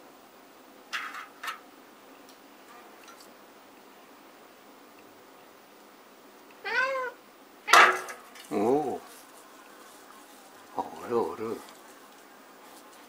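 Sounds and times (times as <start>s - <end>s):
cat meowing: 6.6s - 7.9s.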